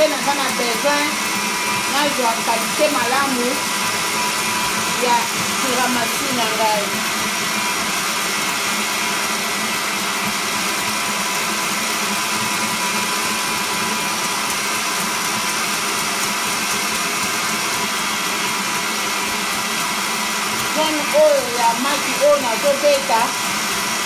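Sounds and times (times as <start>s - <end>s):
electric mixer running: 0.0s - 24.0s.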